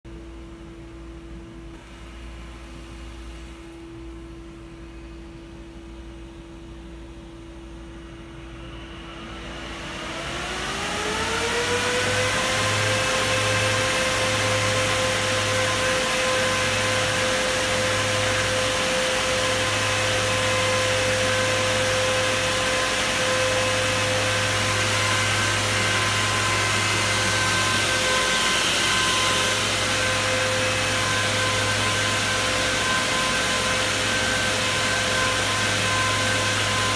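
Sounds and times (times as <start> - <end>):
server fans whining: 0.1 - 36.9
airflow noise: 1.7 - 36.9.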